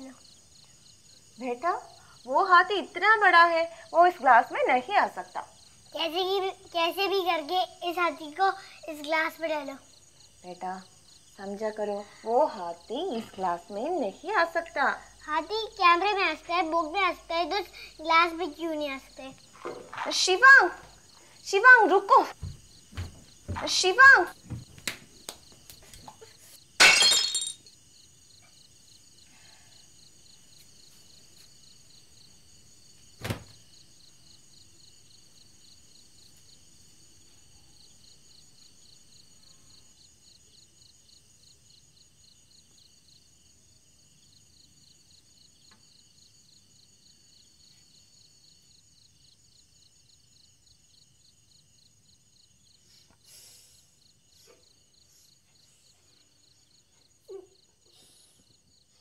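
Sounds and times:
crickets chirping: 0.0s - 59.0s
glass shattering on floor: 26.8s - 27.7s.

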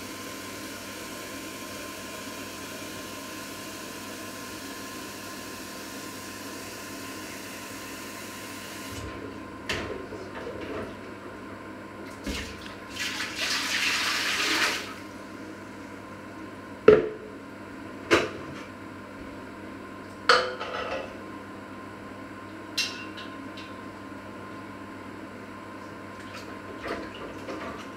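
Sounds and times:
water filling plastic jug: 12.2s - 14.9s
kitchen tap running: 12.2s - 15.0s.

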